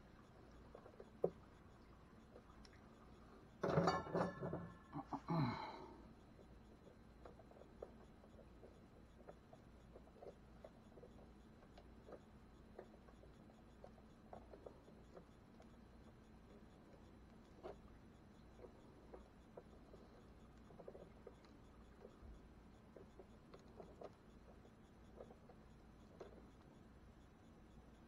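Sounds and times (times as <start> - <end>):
person mumbling: 4.9 - 5.9.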